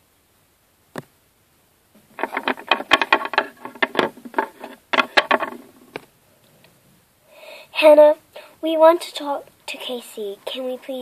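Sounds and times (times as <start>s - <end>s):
plastic toy figurines clicking: 2.2s - 5.7s.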